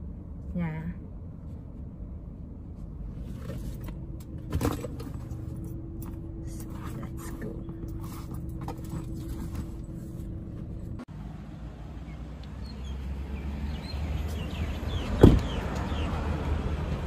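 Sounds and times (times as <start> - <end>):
car cabin hum: 0.0 - 12.9
birds chirping: 12.0 - 16.2
car door shutting: 15.1 - 15.6.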